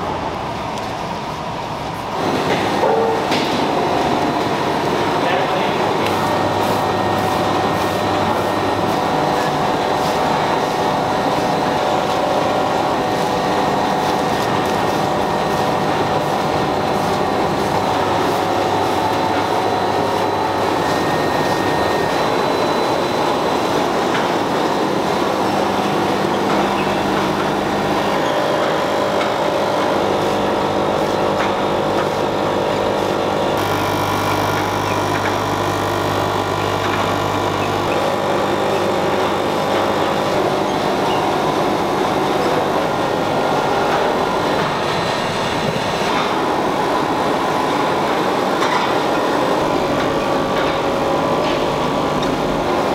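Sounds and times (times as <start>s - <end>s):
production line machinery din: 0.0s - 52.9s.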